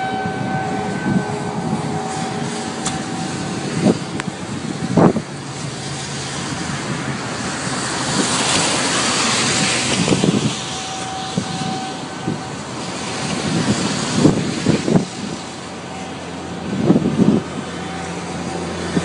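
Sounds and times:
low thumps: 0.0 - 6.1
rain: 0.0 - 19.0
storm wind: 0.0 - 19.0
car tyres hissing on wet road: 0.2 - 19.0.

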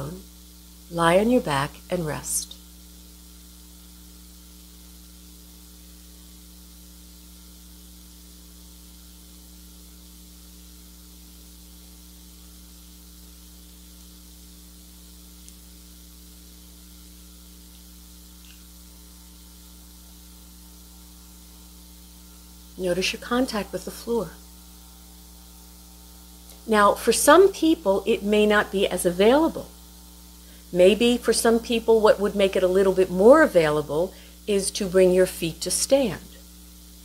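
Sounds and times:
electrical mains hum: 0.0 - 37.0.

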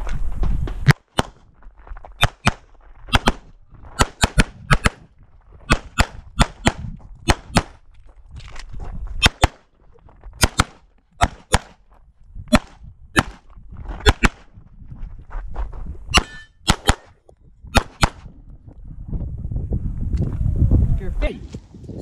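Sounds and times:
pistol fired in quick pairs: 2.2 - 5.1, 5.7 - 7.8, 9.2 - 9.7, 10.4 - 11.8, 12.5 - 13.4, 14.0 - 14.5, 16.2 - 18.3.

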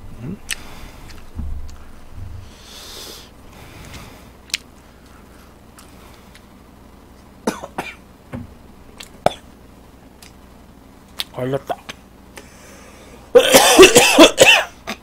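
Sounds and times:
man coughing: 13.4 - 14.8.

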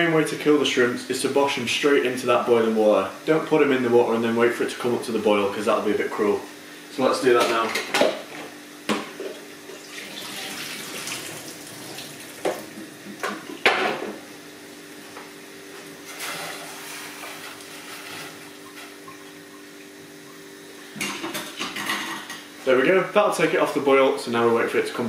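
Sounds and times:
tap running into sink: 10.1 - 14.1.

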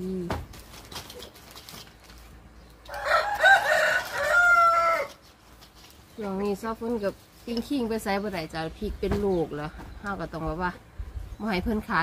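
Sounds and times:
rustling: 0.0 - 9.3
rooster crowing: 2.9 - 5.2.

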